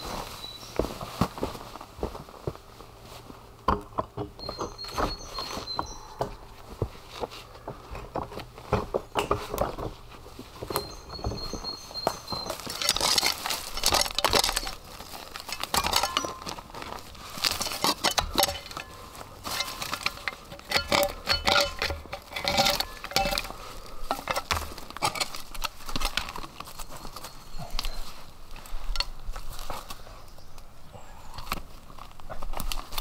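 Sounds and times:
shovel scraping soil: 0:10.7 - 0:28.1
shovel blade clinking on stones: 0:10.8 - 0:16.7, 0:17.4 - 0:23.6.

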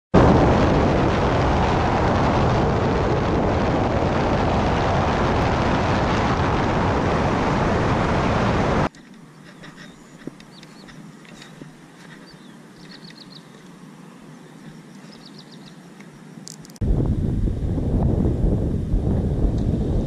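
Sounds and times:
wind and road noise: 0:00.2 - 0:20.0
faint outdoor ambience: 0:06.4 - 0:20.0.

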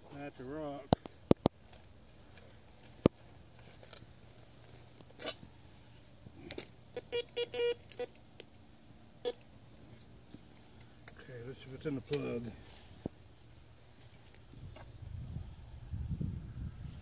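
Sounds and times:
metal detector beeps: 0:06.9 - 0:08.2.

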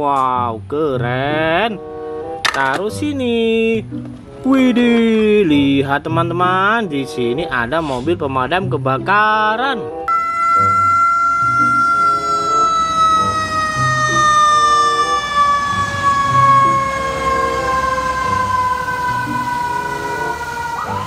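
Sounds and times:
fire truck siren: 0:10.1 - 0:21.0.

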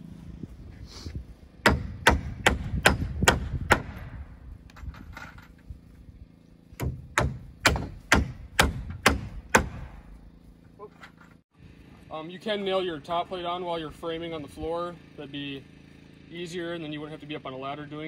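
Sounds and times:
hammer driving nails into wood: 0:01.6 - 0:04.2, 0:06.8 - 0:10.0.

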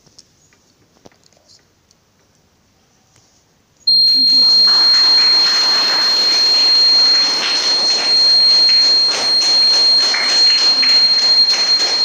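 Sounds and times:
high-pitched buzzer tone: 0:03.9 - 0:12.0.

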